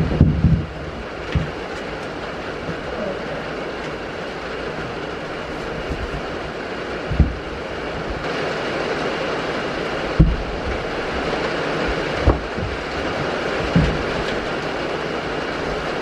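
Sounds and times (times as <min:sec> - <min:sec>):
low thumps: 0:00.0 - 0:01.6, 0:07.0 - 0:08.3, 0:10.1 - 0:14.6
rain on a metal roof: 0:00.0 - 0:16.0.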